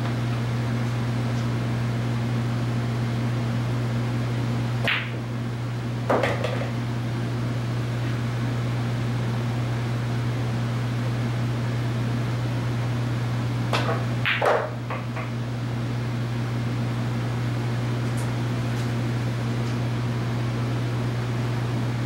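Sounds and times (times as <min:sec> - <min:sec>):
steady low hum: 0:00.0 - 0:22.0
cue striking ball: 0:04.8 - 0:05.3, 0:06.1 - 0:06.8, 0:13.7 - 0:15.3.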